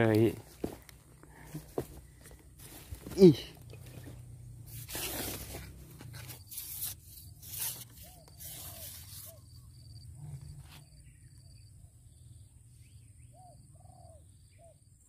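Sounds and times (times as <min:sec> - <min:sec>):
fishing rod rustling: 0:00.0 - 0:09.4
faint bird calls: 0:07.6 - 0:15.0.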